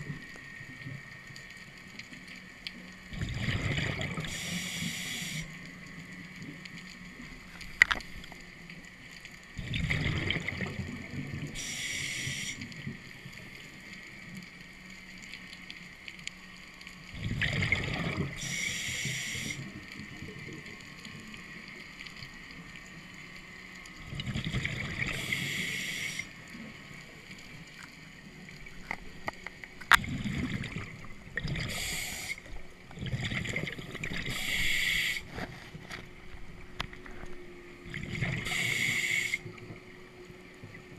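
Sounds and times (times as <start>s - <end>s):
exhaled bubbles gurgling: 3.1s - 5.6s, 9.5s - 13.6s, 17.1s - 23.0s, 24.0s - 40.9s
regulator inhale hiss: 4.2s - 5.6s, 11.5s - 12.8s, 18.4s - 19.8s, 25.0s - 26.4s, 31.6s - 32.6s, 34.2s - 35.4s, 38.3s - 39.6s.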